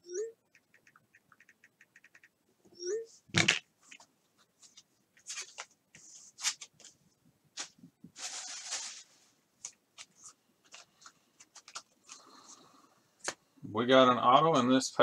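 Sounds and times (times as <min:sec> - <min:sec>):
papery swish of cards: 0:07.6 - 0:09.2.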